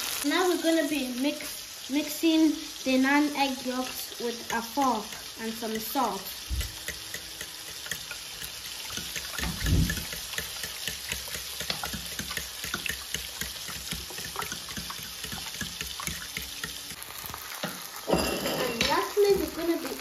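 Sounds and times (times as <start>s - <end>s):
fork whisking eggs in a bowl: 4.4s - 17.0s.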